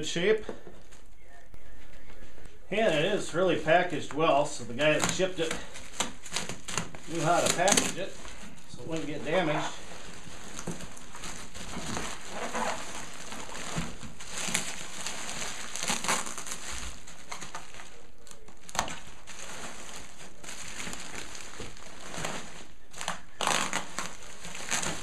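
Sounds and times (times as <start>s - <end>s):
bubble wrap and paper crinkling: 0.0s - 25.0s.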